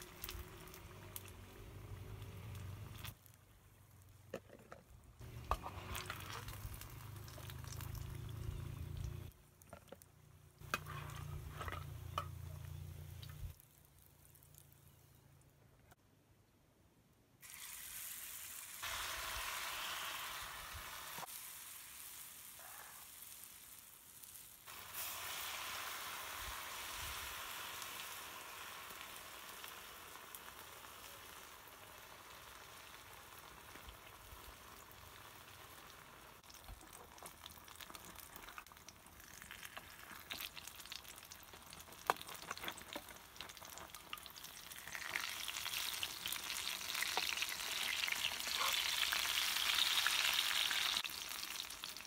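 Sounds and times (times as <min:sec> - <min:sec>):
batter sizzling in hot oil: 0:00.0 - 0:04.4, 0:05.2 - 0:10.0, 0:10.6 - 0:15.0, 0:17.4 - 0:52.0
metal spoon scraping a pan: 0:04.4 - 0:06.6, 0:10.6 - 0:12.5.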